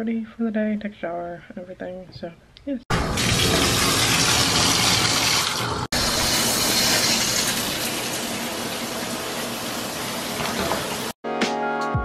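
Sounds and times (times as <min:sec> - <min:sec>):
water running from bathtub spout: 0:02.9 - 0:11.2.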